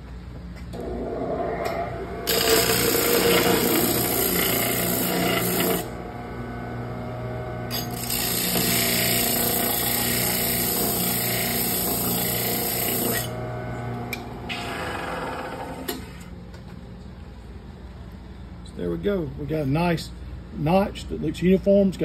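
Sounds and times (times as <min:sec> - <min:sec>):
disc sander motor humming: 0:01.6 - 0:15.9
metal grinding on sanding disc: 0:02.3 - 0:05.9.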